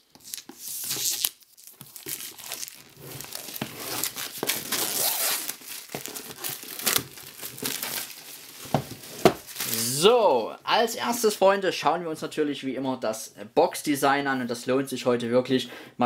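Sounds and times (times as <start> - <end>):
plastic film crinkling: 0.0 - 10.2
knife slitting plastic film: 0.1 - 9.9.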